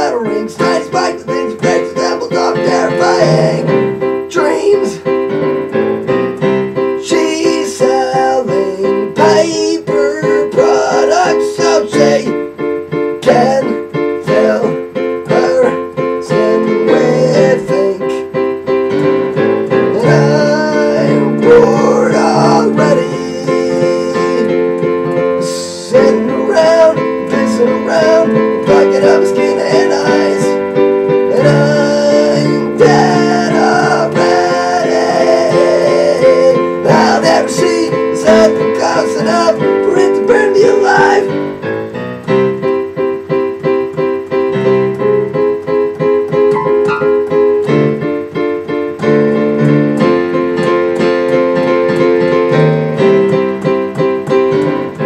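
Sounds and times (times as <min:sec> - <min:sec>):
man singing: 0:00.0 - 0:05.1, 0:07.0 - 0:12.5, 0:13.2 - 0:18.4, 0:19.9 - 0:24.7, 0:25.3 - 0:30.6, 0:31.2 - 0:41.4
digital piano chords: 0:00.0 - 0:55.0.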